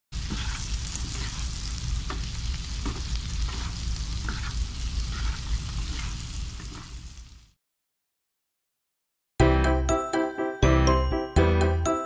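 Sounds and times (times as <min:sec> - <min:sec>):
shrimp sizzling in a pan: 0:00.1 - 0:07.6
spatulas scraping a pan: 0:00.2 - 0:07.1.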